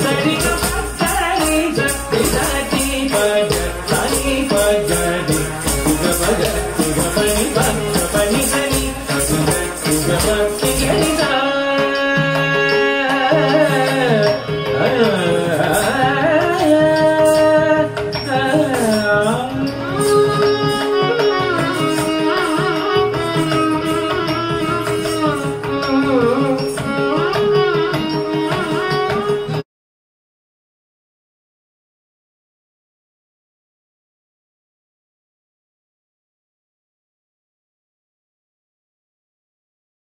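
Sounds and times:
drum strokes: 0.0 - 11.4
ornamented sliding melody: 0.0 - 29.6.

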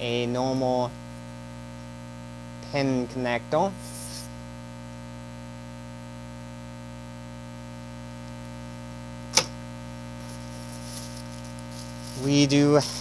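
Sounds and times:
electrical mains hum: 0.0 - 13.0
sharp click: 9.3 - 9.6.

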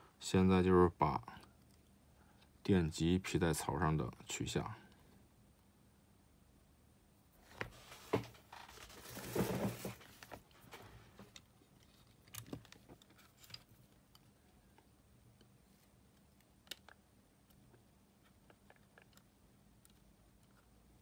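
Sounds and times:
scraping rustle: 7.7 - 11.2.

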